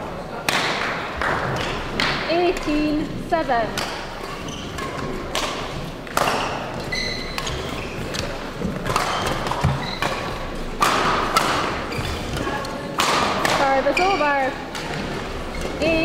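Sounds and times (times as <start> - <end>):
racket hitting shuttlecock: 3.7 - 15.6.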